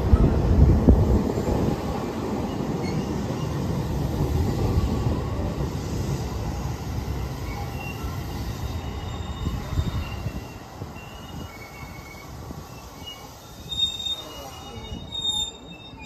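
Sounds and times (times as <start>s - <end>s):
train wheel rumble on rails: 0.0s - 16.0s
brake squeals: 7.4s - 16.0s.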